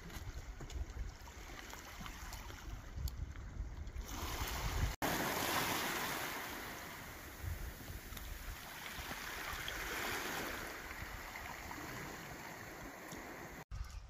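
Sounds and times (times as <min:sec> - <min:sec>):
wind buffeting microphone: 0:00.0 - 0:14.0
water washing against shore: 0:03.8 - 0:13.7.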